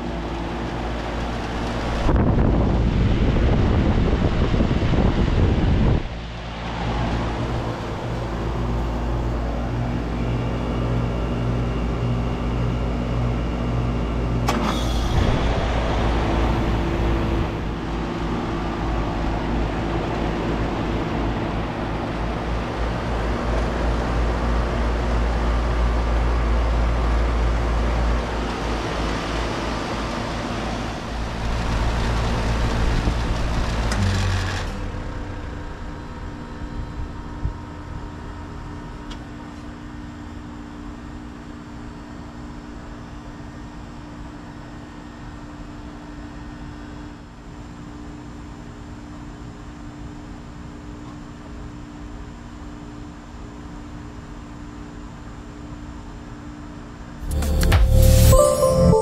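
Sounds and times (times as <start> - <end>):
compressor humming: 0.0 - 23.2
fan air noise: 0.0 - 58.4.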